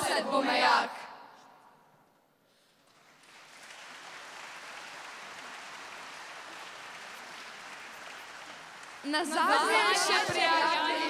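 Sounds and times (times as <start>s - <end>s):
audience applause: 2.8s - 11.0s.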